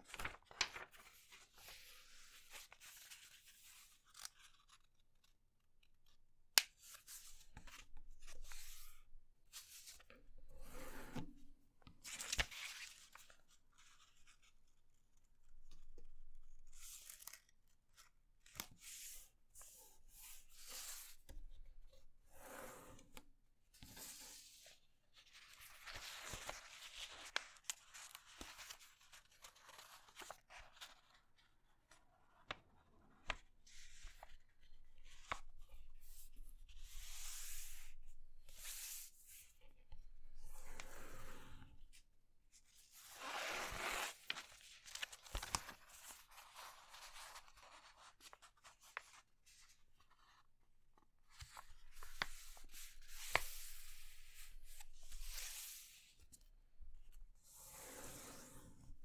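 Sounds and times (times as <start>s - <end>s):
paper rustling and crinkling: 0.0s - 5.3s, 25.2s - 35.6s, 43.0s - 50.5s.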